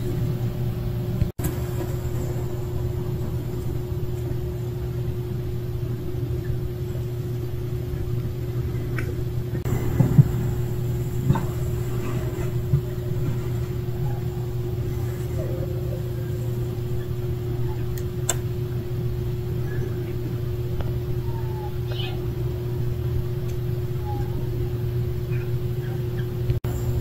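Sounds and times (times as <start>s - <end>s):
low mechanical hum: 0.0s - 27.0s.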